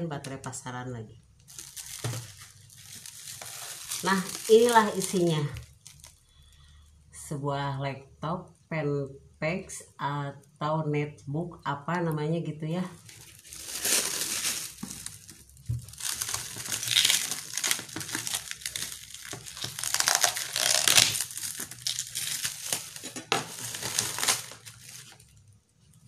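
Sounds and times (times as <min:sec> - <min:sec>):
plastic shrink-wrap crinkling and tearing: 0:01.4 - 0:06.9, 0:12.9 - 0:26.0.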